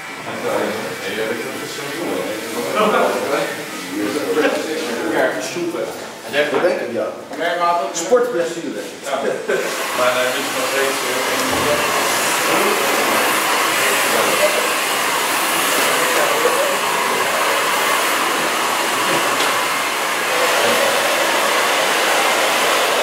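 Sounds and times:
air blower rushing: 9.6s - 23.0s.

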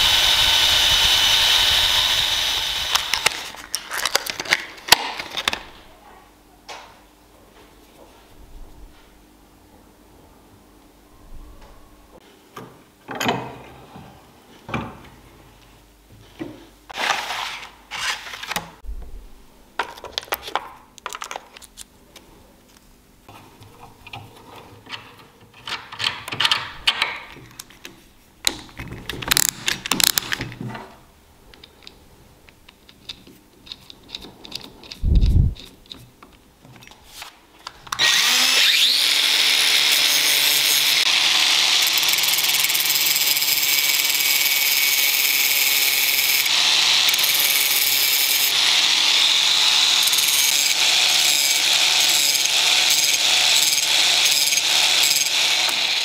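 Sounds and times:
angle grinder running: 0.0s - 3.6s, 38.0s - 56.0s.

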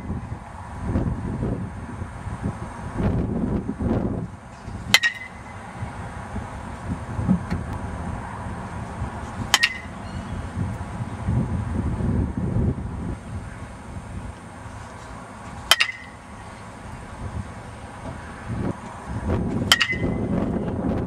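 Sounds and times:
wind rumble on microphone: 0.0s - 21.0s
metal bat hitting ball: 4.9s - 5.6s, 9.5s - 10.0s, 15.7s - 16.3s, 19.6s - 20.3s.

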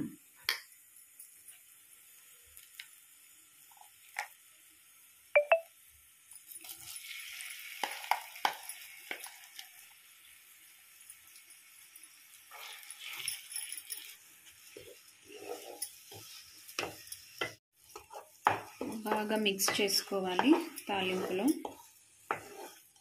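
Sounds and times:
paste sizzling in hot oil: 0.2s - 23.0s
spoon scraping and tapping pan: 7.7s - 9.7s, 12.5s - 23.0s
steel spoon clinking: 11.1s - 14.2s.

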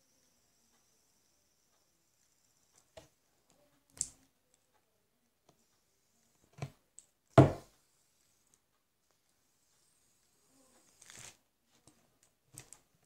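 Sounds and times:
faint high whine: 0.0s - 3.7s.

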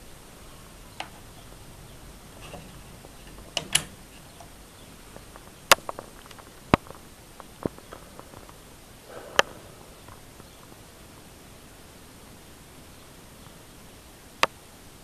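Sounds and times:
faint hiss: 0.0s - 15.0s
rotary dial clicks: 2.4s - 4.6s.

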